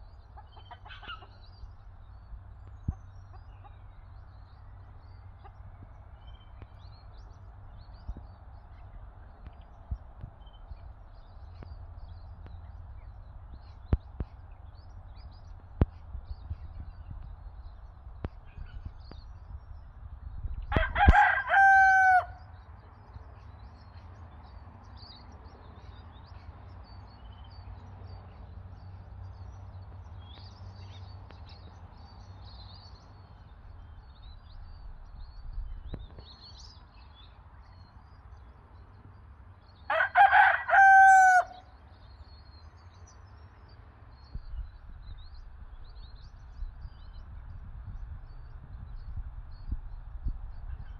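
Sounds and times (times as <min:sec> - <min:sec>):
rooster crowing: 0:20.7 - 0:22.4, 0:39.9 - 0:41.7.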